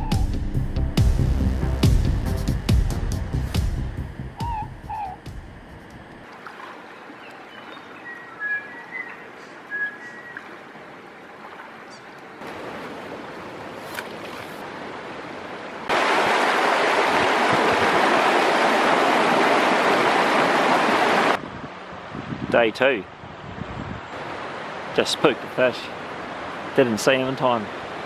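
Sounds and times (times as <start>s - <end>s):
creek water rushing over stones: 6.1s - 21.4s, 24.2s - 28.0s.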